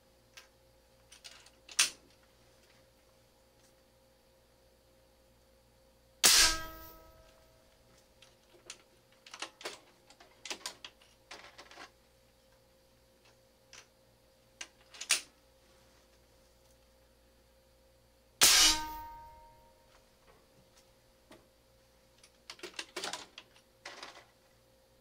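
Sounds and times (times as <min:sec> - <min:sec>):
air rifle shot: 0:06.2 - 0:07.0
sharp clack: 0:06.2 - 0:07.4, 0:18.4 - 0:19.6.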